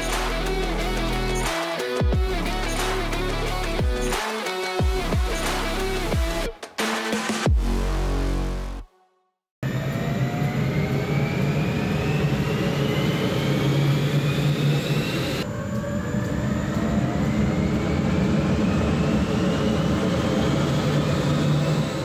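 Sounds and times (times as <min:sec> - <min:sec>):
turbojet whine rising in pitch: 0:09.6 - 0:22.0.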